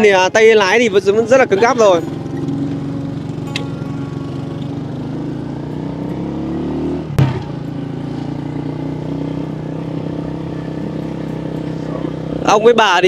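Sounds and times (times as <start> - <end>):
small motorbike engine: 0.6 - 12.8
sharp knock: 7.2 - 7.6.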